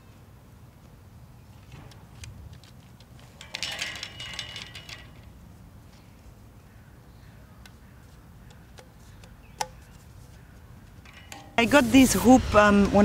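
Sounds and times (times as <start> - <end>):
plastic hoop sections clattering: 1.6 - 6.1, 7.6 - 11.6.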